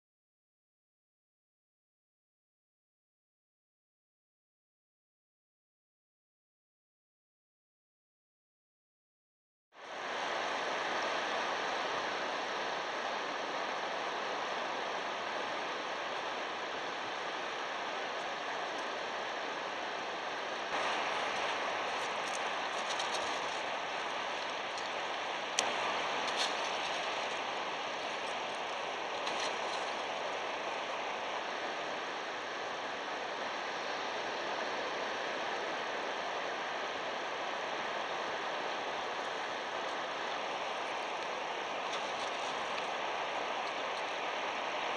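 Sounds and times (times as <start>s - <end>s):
wind: 9.7s - 44.9s
surf: 9.8s - 44.9s.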